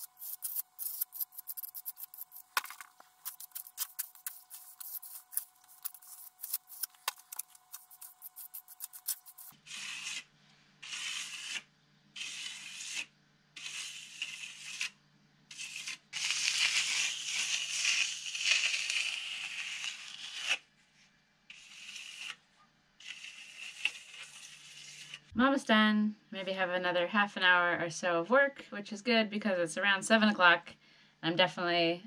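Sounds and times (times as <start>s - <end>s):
trowel scraping wet plaster: 0.0s - 14.9s, 21.5s - 22.4s, 23.0s - 25.3s.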